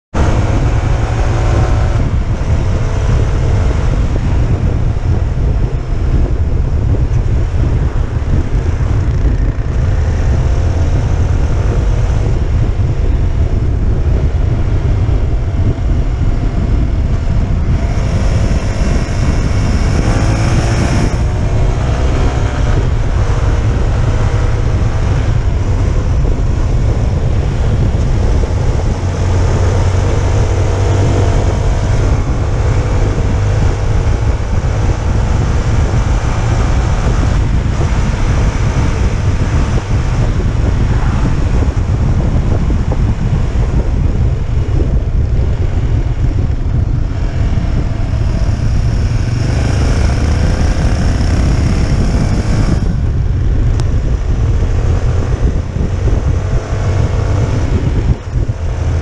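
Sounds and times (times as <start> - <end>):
motorcycle engine accelerating: 0.1 - 59.0
wind buffeting microphone: 0.1 - 59.0.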